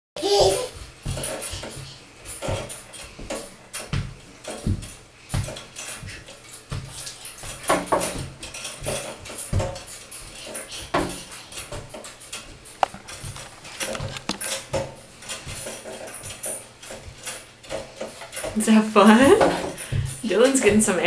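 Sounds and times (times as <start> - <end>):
feet thumping on wooden floor: 0.2 - 15.8, 16.9 - 20.9
springs and straps creaking: 0.2 - 21.0.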